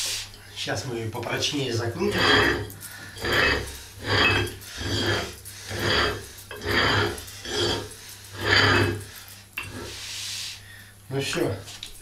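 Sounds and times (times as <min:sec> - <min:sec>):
metal threads grating: 0:01.4 - 0:10.1.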